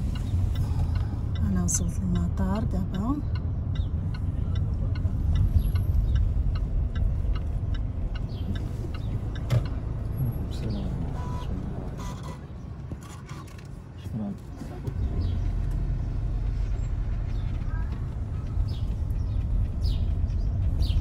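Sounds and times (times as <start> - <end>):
light regular ticking: 0.0 - 11.0
car engine and tyre rumble: 0.0 - 21.0.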